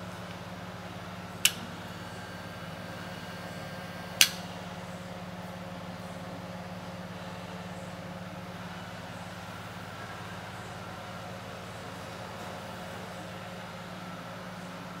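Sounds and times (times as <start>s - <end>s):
low machine hum: 0.0s - 15.0s
toggle switch click: 1.4s - 1.6s, 4.2s - 4.4s.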